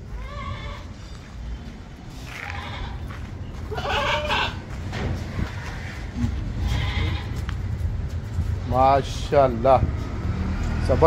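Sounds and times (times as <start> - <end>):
goat bleating: 0.0 - 1.1, 2.2 - 4.8, 6.0 - 7.6.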